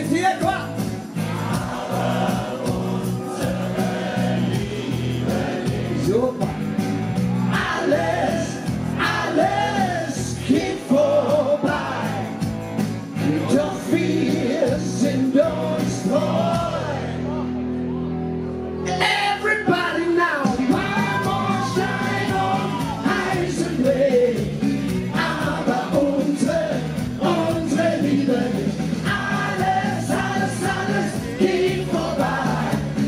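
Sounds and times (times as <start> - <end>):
backing music over speakers: 0.0 - 33.0
man and woman singing pop song: 7.5 - 12.4, 13.2 - 17.2, 19.0 - 33.0.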